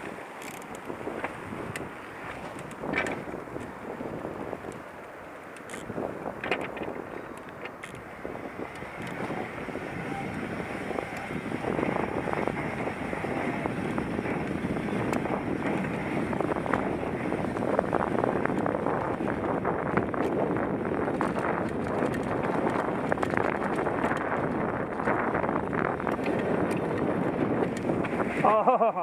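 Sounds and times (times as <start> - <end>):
wind buffeting microphone: 0.0 - 28.7
bike tyres rolling on dirt: 0.0 - 28.8
small clicks and rattles: 0.4 - 1.8, 2.4 - 3.7, 5.5 - 8.1, 21.1 - 25.2.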